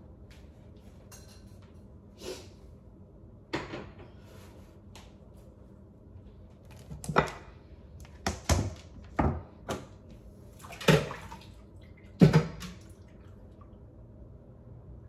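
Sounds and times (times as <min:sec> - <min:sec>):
kitchen items knocking and clunking: 0:03.5 - 0:04.2, 0:06.8 - 0:10.0, 0:12.2 - 0:12.8.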